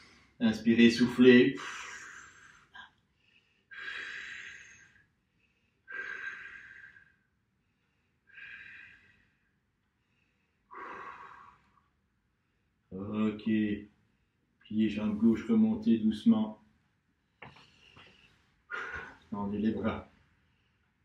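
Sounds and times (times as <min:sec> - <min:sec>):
man breathing deeply: 0:01.5 - 0:12.8.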